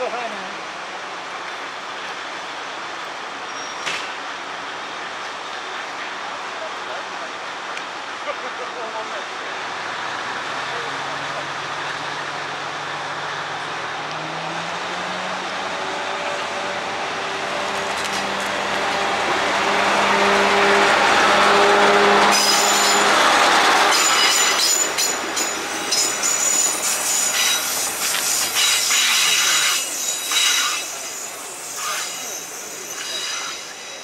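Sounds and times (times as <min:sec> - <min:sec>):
train wheels squealing: 0:03.5 - 0:04.0, 0:22.3 - 0:34.0
diesel railcar engine running: 0:08.9 - 0:34.0
wheels clicking over rail joints: 0:17.7 - 0:19.2.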